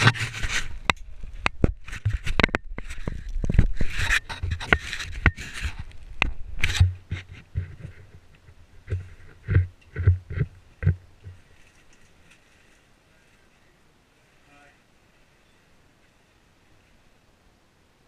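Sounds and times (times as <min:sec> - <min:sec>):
gear scraping against rock: 0:00.0 - 0:08.2.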